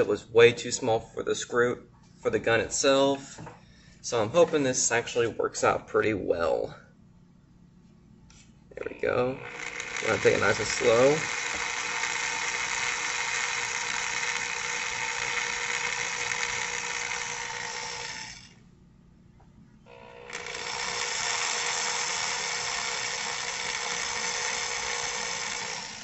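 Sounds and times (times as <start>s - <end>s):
electric drill running: 8.8s - 18.6s, 19.9s - 26.0s.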